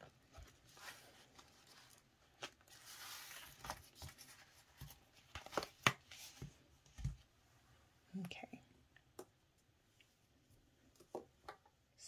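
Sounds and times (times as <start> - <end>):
plastic pages rustling: 0.0 - 7.1.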